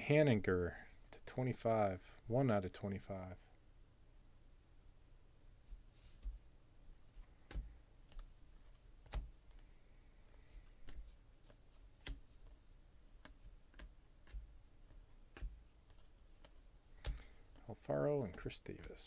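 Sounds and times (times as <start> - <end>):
cards snapping while shuffled: 13.2 - 17.6.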